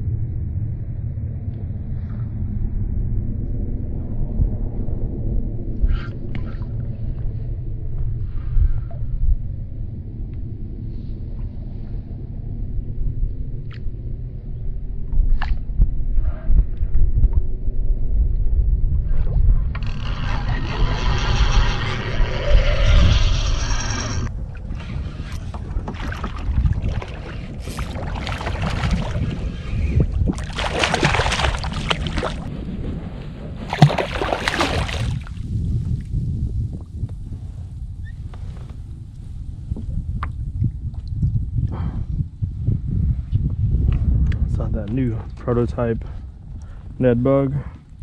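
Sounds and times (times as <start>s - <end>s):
wind buffeting microphone: 0.0s - 48.0s
fish splashing in water: 25.6s - 29.5s, 30.2s - 32.5s, 33.7s - 35.4s.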